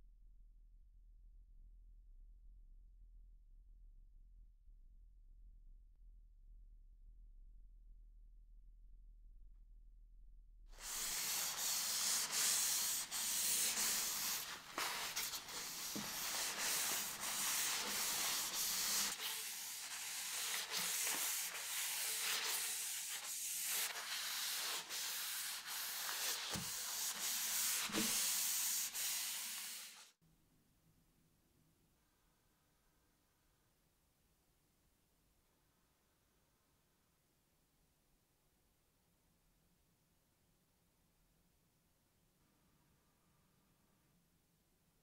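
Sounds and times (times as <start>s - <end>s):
cloth wiping wood: 10.8s - 30.1s.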